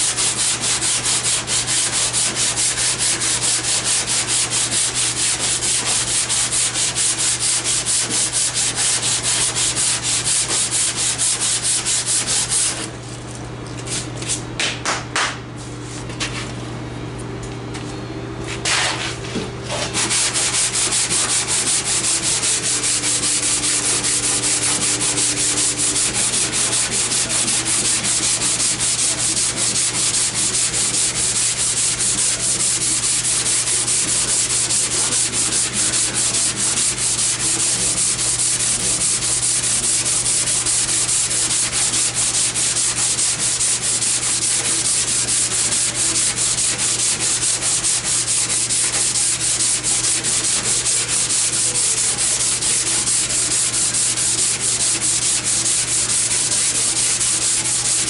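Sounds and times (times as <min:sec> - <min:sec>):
sandpaper scratching on filler: 0:00.0 - 0:12.9, 0:18.6 - 0:58.0.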